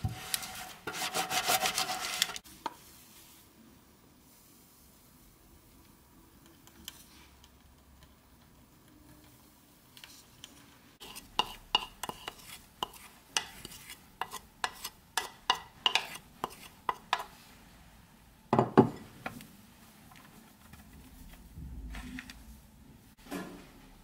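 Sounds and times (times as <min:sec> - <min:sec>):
wooden spoon scraping ceramic bowl: 0:00.0 - 0:02.4, 0:10.5 - 0:17.4.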